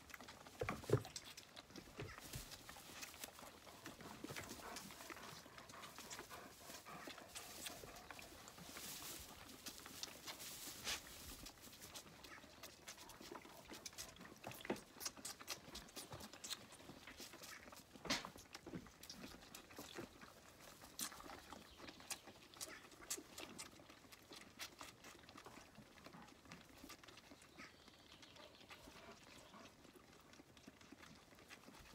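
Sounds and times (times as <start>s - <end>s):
lambs clicking and tapping: 0.0s - 31.9s
hay rustling: 6.0s - 11.6s.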